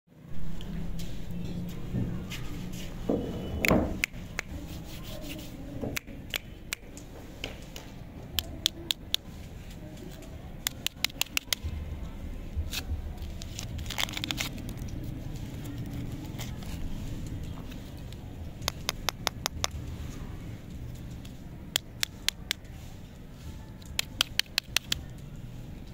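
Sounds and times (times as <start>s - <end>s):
plastic wrapper crinkling: 12.7s - 17.1s.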